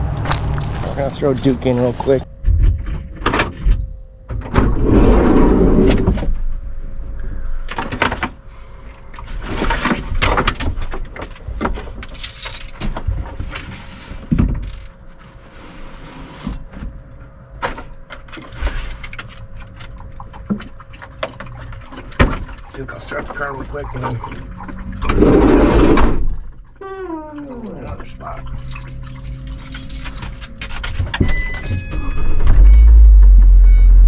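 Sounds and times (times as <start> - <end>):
loud rumble: 0.0 - 7.4, 32.3 - 34.0
faint steady hum: 0.0 - 34.0.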